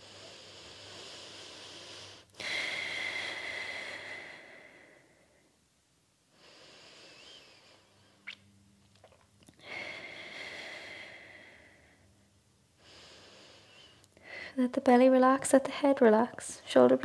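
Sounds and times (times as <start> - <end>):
woman breathing slowly: 0.0 - 5.6, 6.3 - 8.2, 9.6 - 14.6.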